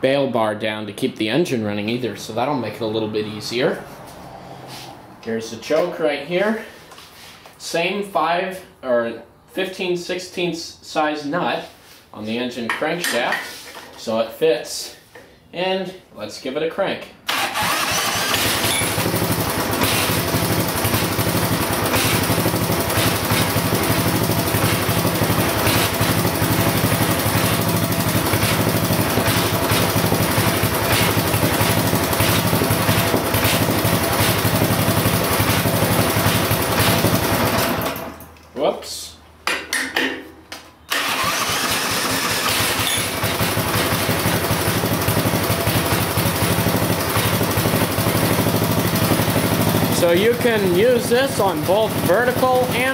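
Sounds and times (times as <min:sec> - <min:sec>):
small engine running: 0:17.4 - 0:38.1, 0:41.0 - 0:52.8.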